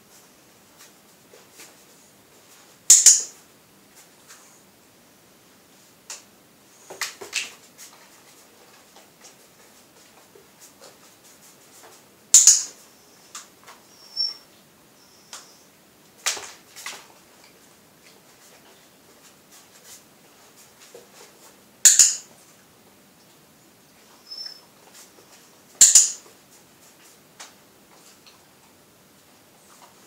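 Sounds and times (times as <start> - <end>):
sharp double clicks: 21.9 - 22.2.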